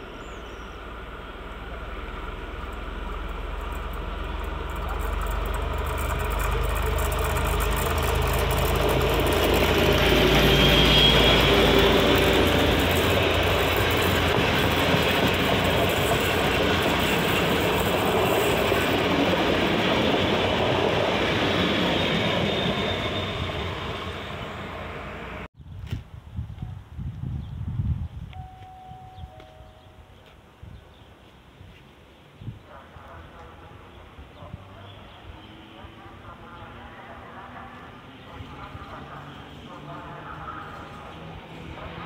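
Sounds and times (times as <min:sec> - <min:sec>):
diesel locomotive engine drone: 0:00.0 - 0:25.5, 0:32.4 - 0:42.0
train wheels on rails: 0:00.8 - 0:25.5.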